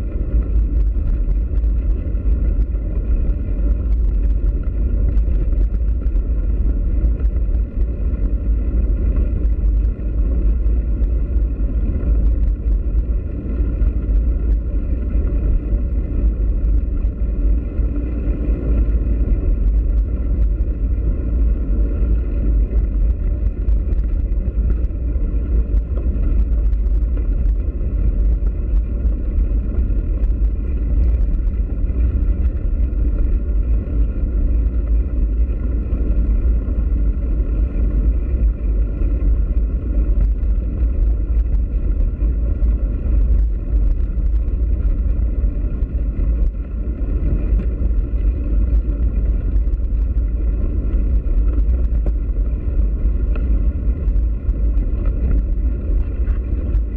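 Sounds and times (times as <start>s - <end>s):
bicycle tyres on dirt: 0.0s - 56.9s
wind on camera microphone: 0.0s - 56.9s
faint ticks: 39.2s - 56.9s.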